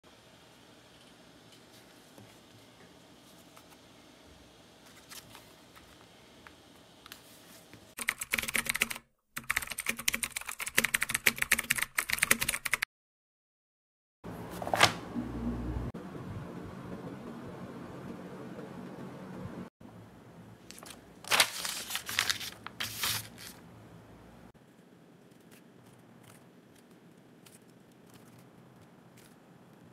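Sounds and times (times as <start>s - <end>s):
computer keyboard typing: 8.0s - 12.9s
low hum: 14.3s - 20.6s.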